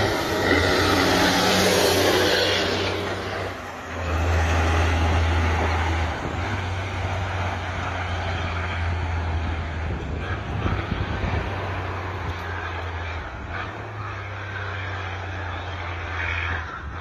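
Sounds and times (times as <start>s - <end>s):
truck diesel engine under load: 0.0s - 17.0s.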